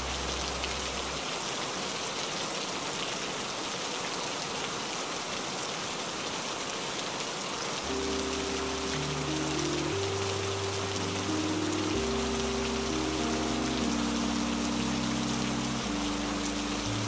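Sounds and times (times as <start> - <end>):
low bass note: 0.0 - 1.2, 7.9 - 17.0
steady rain falling: 0.0 - 17.0.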